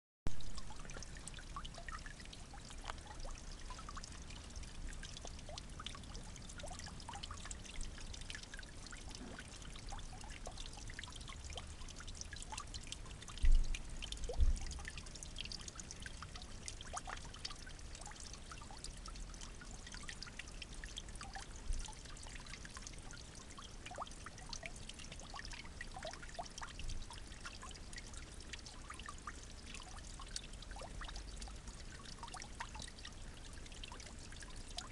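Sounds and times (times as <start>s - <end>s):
small drips and ticks: 0.3s - 34.9s
water trickling and splashing: 0.3s - 34.9s.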